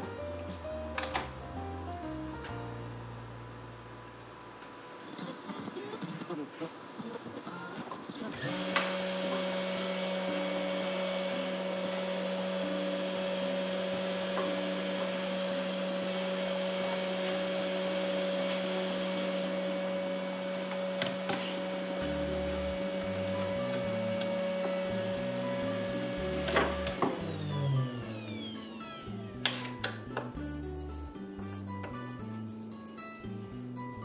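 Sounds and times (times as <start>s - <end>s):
axis drive motor whines: 8.3s - 30.1s
router spindle motor whine: 8.4s - 30.0s.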